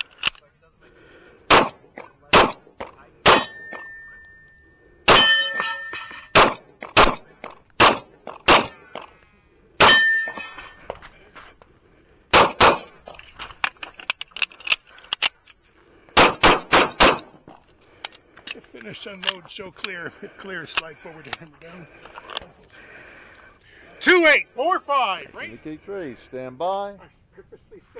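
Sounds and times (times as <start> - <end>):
pistol shots: 1.5 - 4.0, 5.1 - 5.7, 6.3 - 9.0, 9.8 - 10.4, 12.3 - 13.0, 16.2 - 17.4
steel targets clanging: 3.2 - 6.7, 9.8 - 10.9, 13.0 - 14.3.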